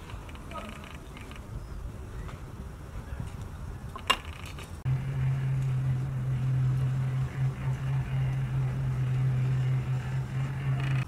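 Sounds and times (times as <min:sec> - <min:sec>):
motor humming: 0:04.9 - 0:11.0.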